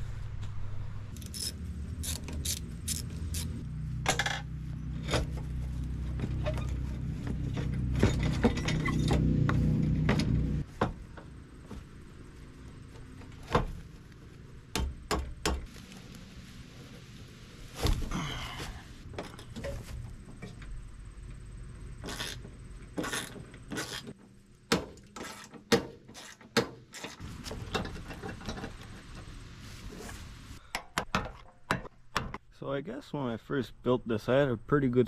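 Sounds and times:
metal car parts clinking: 0:04.0 - 0:05.3, 0:06.4 - 0:09.3.

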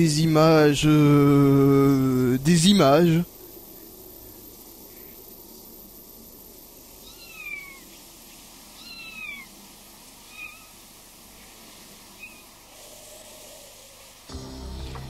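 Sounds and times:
animal's short high calls: 0:07.0 - 0:07.9, 0:08.8 - 0:09.5, 0:10.3 - 0:10.8.

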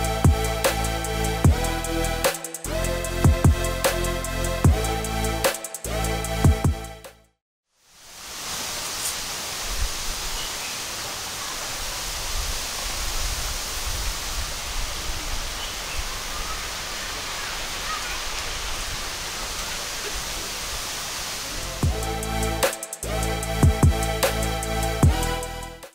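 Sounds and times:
steady rush of noise: 0:07.9 - 0:25.8.

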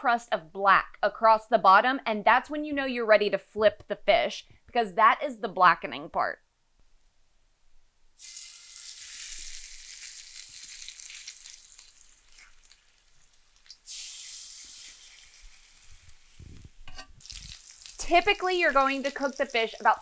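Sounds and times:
fish sizzling in hot oil: 0:08.2 - 0:20.0.

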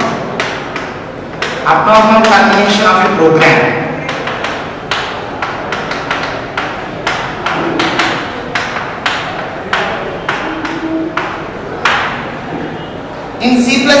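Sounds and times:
chalk tapping and scratching: 0:04.0 - 0:12.2.

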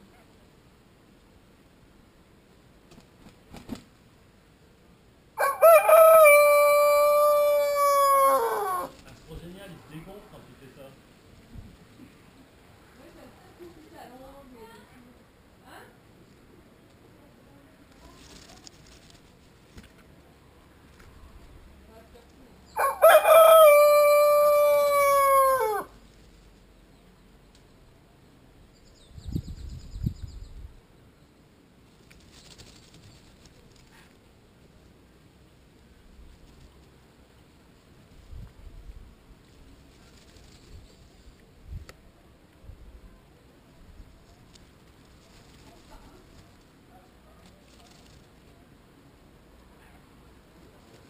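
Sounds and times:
rooster crowing: 0:05.4 - 0:09.0, 0:22.8 - 0:25.9.

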